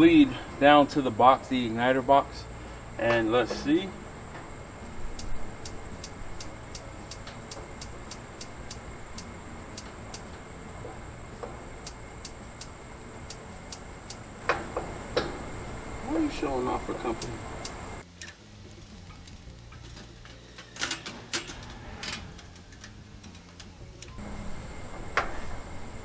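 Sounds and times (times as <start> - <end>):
grill spark igniter clicking: 5.1 - 10.4, 11.6 - 15.6, 16.4 - 24.2.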